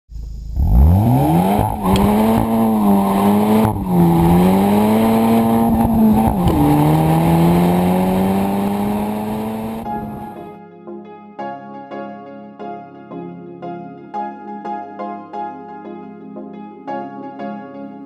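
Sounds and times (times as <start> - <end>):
car engine accelerating through gears: 0.2 - 10.5.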